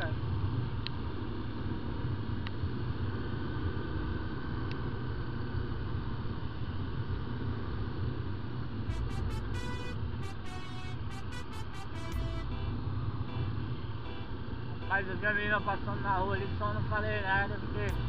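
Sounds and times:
wind and road noise: 0.0s - 8.9s.

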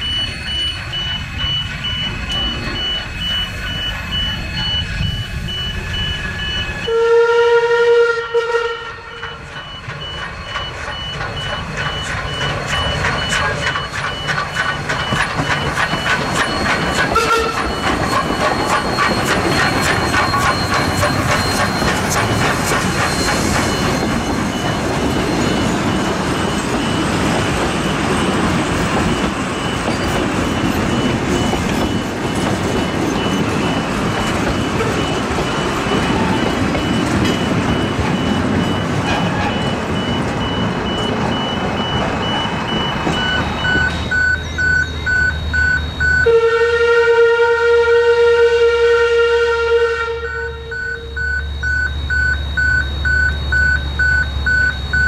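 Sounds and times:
level crossing alarm beeping: 0.0s - 47.5s, 49.2s - 55.0s
train wheels clattering over rails: 9.1s - 45.5s.

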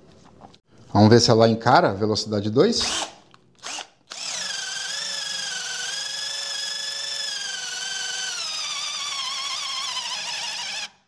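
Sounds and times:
cordless drill whining: 2.8s - 11.0s.

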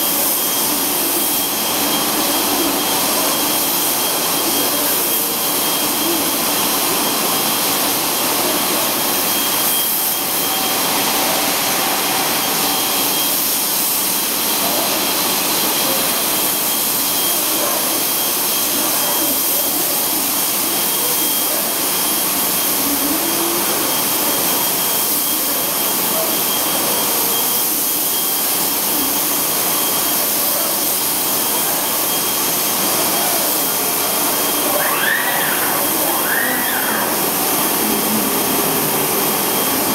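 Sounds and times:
loud hiss and rush of air: 27.6s - 39.9s
thin high tone: 31.6s - 39.9s.

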